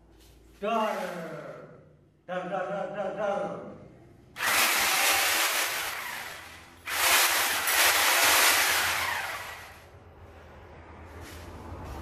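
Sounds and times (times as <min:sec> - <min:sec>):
angle grinder whirring: 0:04.4 - 0:09.9.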